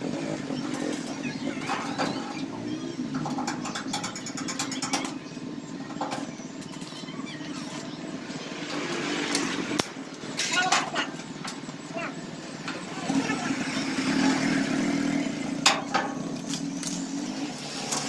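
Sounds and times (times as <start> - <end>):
motorcycle engine running: 0.0 - 10.2, 11.2 - 18.0
rapid metallic clicks: 3.1 - 7.0.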